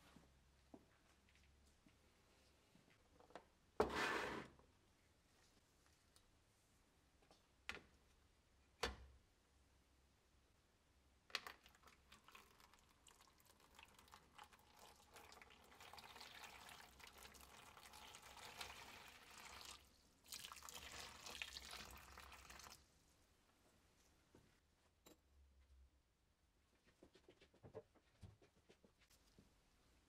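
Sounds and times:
water pouring into a tub: 0:11.4 - 0:22.8.

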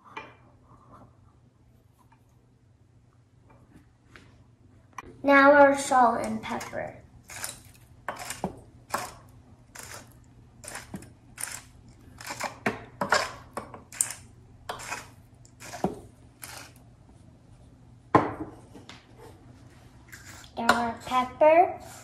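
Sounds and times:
salt grinder crunching: 0:07.2 - 0:12.6, 0:13.9 - 0:15.8, 0:16.4 - 0:16.8.

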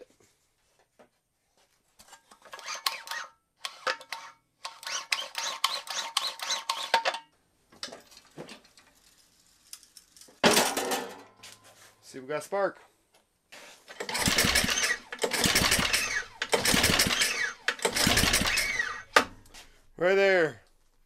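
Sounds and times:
loud clatter: 0:14.0 - 0:19.3
recoil starter clicking and rattling: 0:14.0 - 0:19.5.

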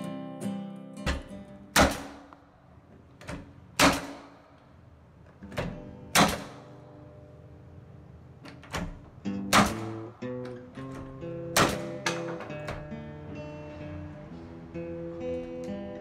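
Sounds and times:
nail gun shots into plywood: 0:01.1 - 0:02.4, 0:03.2 - 0:04.5, 0:05.6 - 0:06.8, 0:08.7 - 0:10.2, 0:10.9 - 0:12.5.

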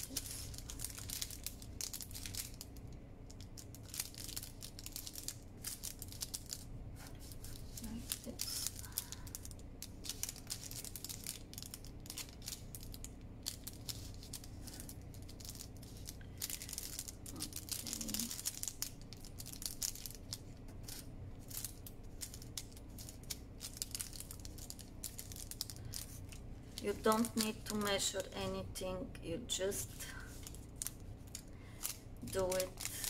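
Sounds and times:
paper cup crinkling and rustling: 0:00.0 - 0:28.8, 0:29.7 - 0:33.0.

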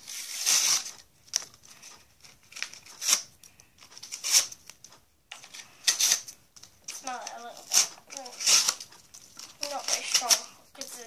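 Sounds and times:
plastic blister pack tearing: 0:00.0 - 0:03.3, 0:06.9 - 0:10.5.

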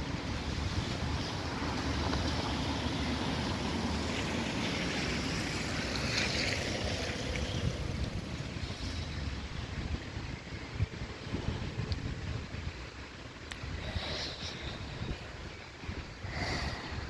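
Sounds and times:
outdoor road ambience: 0:00.0 - 0:17.0
wind buffeting microphone: 0:00.1 - 0:17.0.

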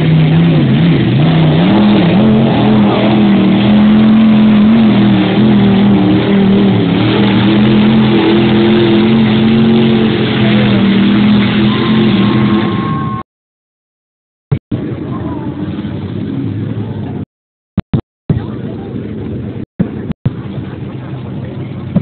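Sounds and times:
truck engine running hard: 0:00.0 - 0:13.2.

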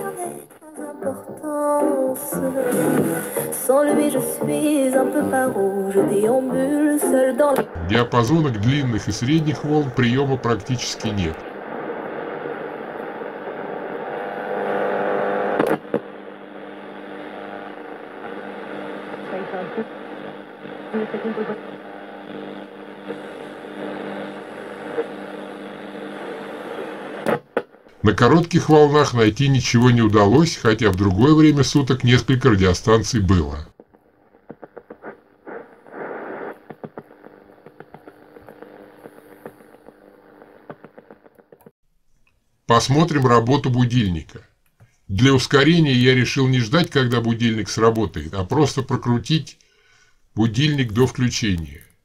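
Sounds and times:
faint hum: 0:00.0 - 0:41.5
radio static hiss: 0:00.0 - 0:41.7, 0:42.7 - 0:44.4, 0:45.1 - 0:49.6, 0:50.4 - 0:52.0.

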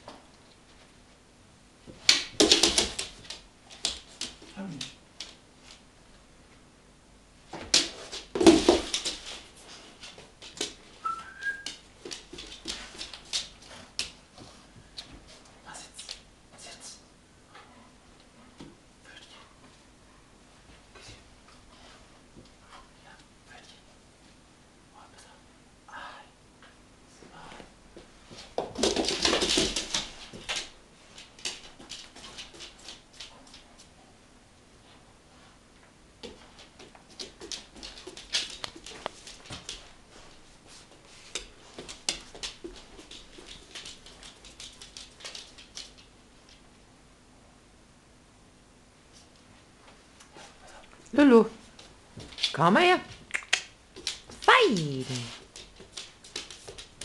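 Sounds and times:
dog claws clicking on hard floor: 0:01.9 - 0:05.8, 0:07.6 - 0:10.8, 0:11.6 - 0:14.2, 0:28.3 - 0:33.9, 0:36.2 - 0:39.9, 0:41.2 - 0:46.6, 0:51.8 - 0:57.0.

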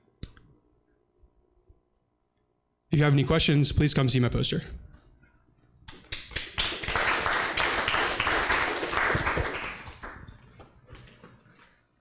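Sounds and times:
audience applauding: 0:06.3 - 0:10.5.

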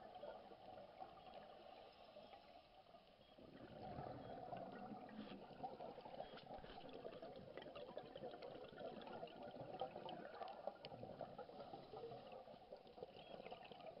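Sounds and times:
underwater air bubbles gurgling: 0:00.0 - 0:14.0
small scattered clicks and crackles: 0:05.1 - 0:14.0.

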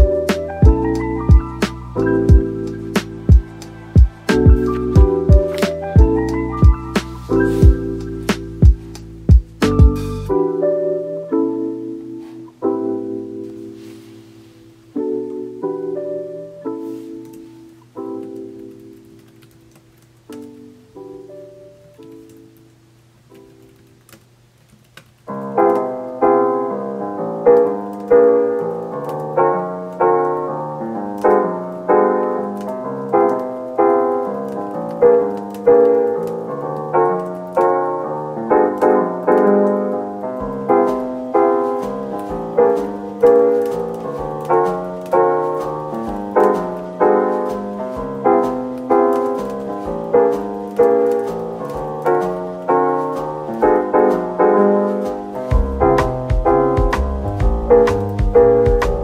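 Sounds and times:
piano repeating pattern: 0:00.0 - 0:59.0
soft low beat: 0:03.3 - 0:10.2, 0:55.5 - 0:59.0.

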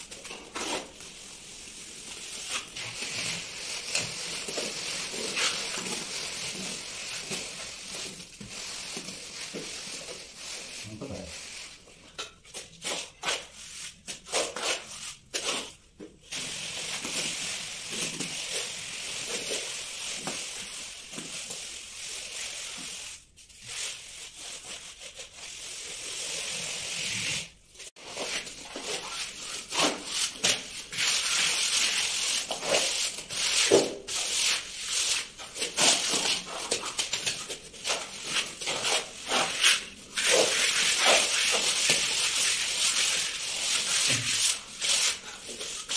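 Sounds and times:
tool scraping plaster wall: 0:23.9 - 0:45.9.

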